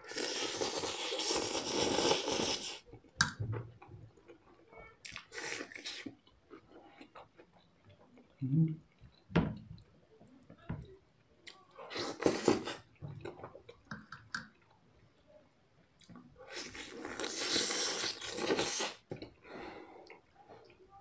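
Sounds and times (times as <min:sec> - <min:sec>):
wet mouth noises: 0:00.0 - 0:02.9, 0:16.0 - 0:19.4.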